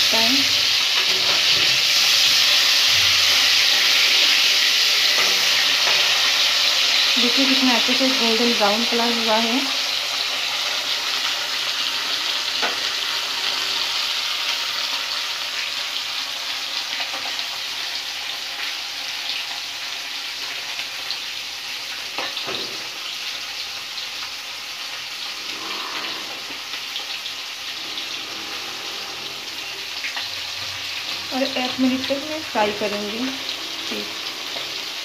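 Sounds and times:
fish sizzling in hot oil: 0.0s - 35.0s.

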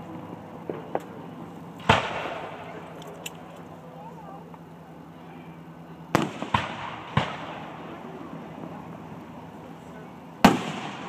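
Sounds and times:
fireworks bangs echoing: 0.6s - 3.0s, 6.1s - 8.2s, 10.4s - 11.0s.

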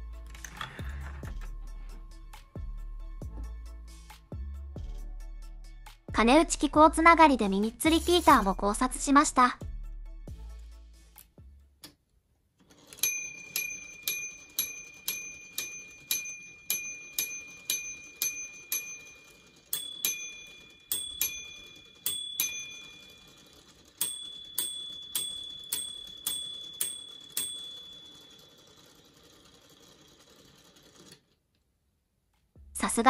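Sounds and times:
mechanism striking bells: 12.8s - 30.0s.

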